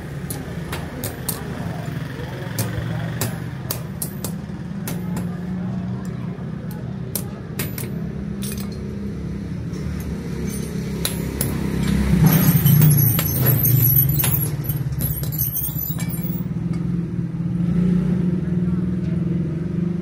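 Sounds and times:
sharp metallic clinks: 0:07.1 - 0:16.8.

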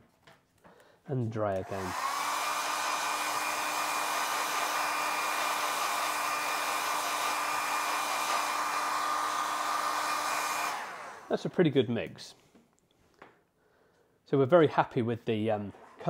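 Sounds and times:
hairdryer running: 0:01.5 - 0:11.3.

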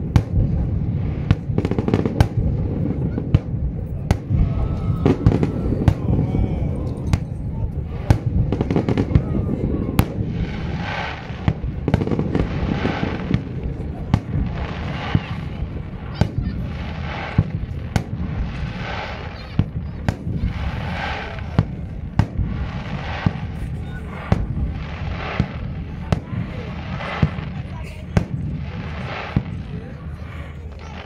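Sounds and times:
fireworks bursting with sharp bangs: 0:00.0 - 0:31.0
fireworks hiss: 0:07.1 - 0:31.0.

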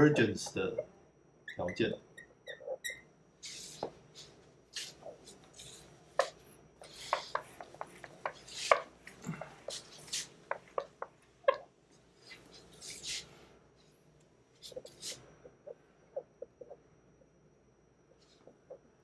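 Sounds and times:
eraser rubbing on whiteboard: 0:03.4 - 0:05.9, 0:06.8 - 0:08.9, 0:09.7 - 0:10.4.

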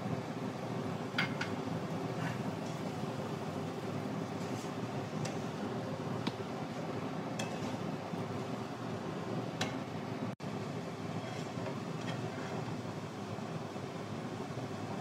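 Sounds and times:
low kitchen noise: 0:00.0 - 0:15.0.

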